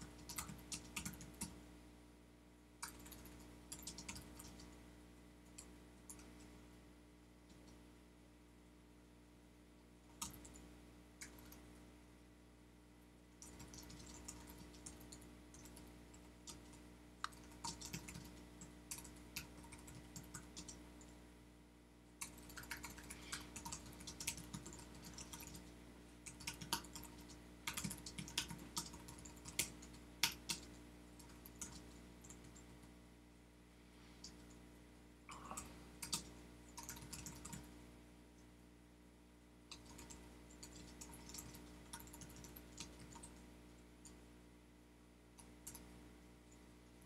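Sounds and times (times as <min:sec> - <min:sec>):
computer keyboard typing: 0:00.0 - 0:01.6, 0:02.8 - 0:04.8, 0:10.1 - 0:10.6, 0:13.4 - 0:21.1, 0:22.2 - 0:32.8, 0:35.3 - 0:37.7, 0:39.7 - 0:43.4, 0:45.4 - 0:45.9
faint steady hum: 0:00.0 - 0:47.0.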